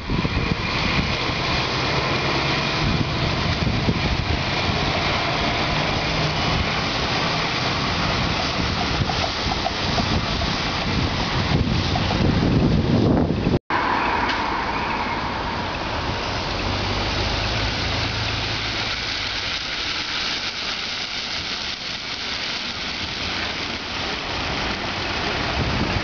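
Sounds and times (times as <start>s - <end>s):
bus engine running: 0.0s - 13.6s, 14.3s - 26.0s
street traffic hum: 0.0s - 26.0s.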